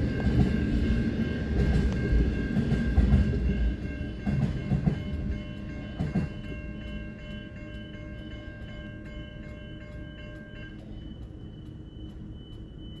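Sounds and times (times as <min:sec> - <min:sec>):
freight train rumbling: 0:00.0 - 0:13.0
level crossing warning bell: 0:00.0 - 0:13.0.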